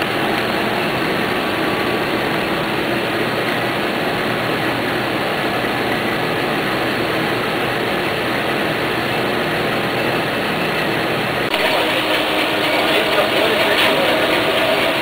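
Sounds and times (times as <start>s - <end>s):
printing machine running: 0.0s - 15.0s.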